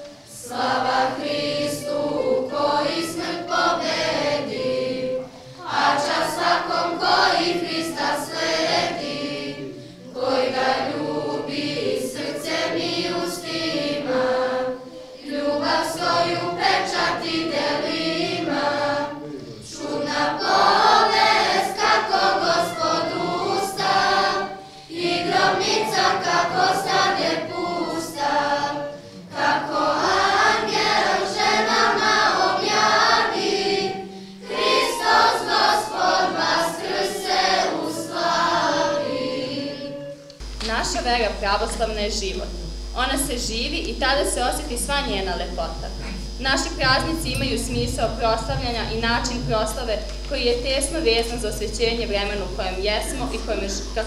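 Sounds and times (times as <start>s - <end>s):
church choir singing: 0.0s - 41.0s.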